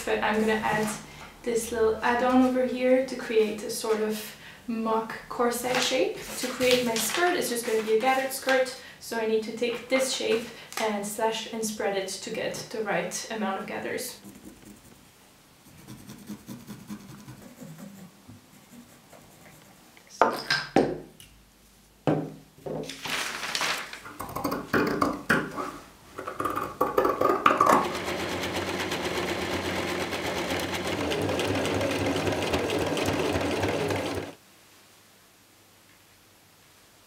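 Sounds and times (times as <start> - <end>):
pencil scratching on paper: 14.1 - 15.0, 15.6 - 19.8
sewing machine stitching: 27.7 - 34.4.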